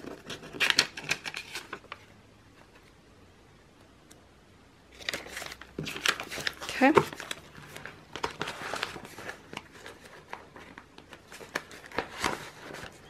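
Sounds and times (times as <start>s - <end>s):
paper banknotes rustling: 4.9s - 13.0s.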